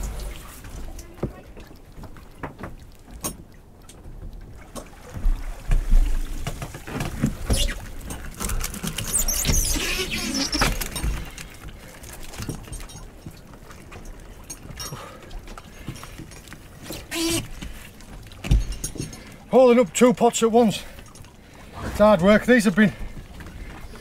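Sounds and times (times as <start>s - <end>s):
squeaky rubbing: 7.5s - 7.9s, 8.9s - 11.1s, 16.8s - 17.5s.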